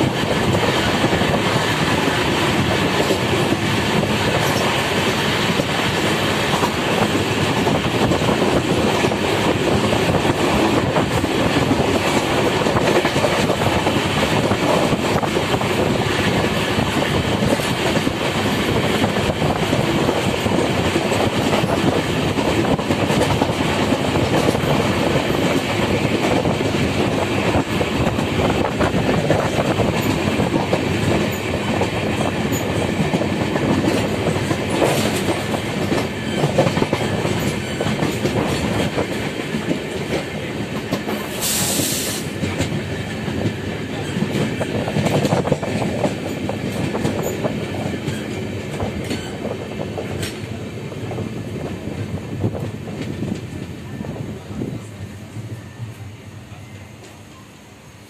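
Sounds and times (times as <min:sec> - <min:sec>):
wind noise: 0:00.0 - 0:56.0
train wheels rumbling and clattering: 0:00.0 - 0:57.4
short high hiss: 0:41.3 - 0:42.4.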